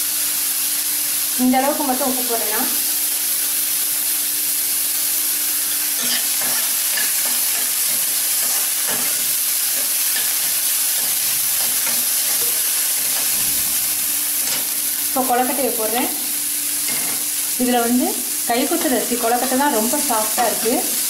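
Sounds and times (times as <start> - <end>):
vegetables sizzling in oil: 0.0 - 21.0
spatula scraping pan: 5.7 - 13.7.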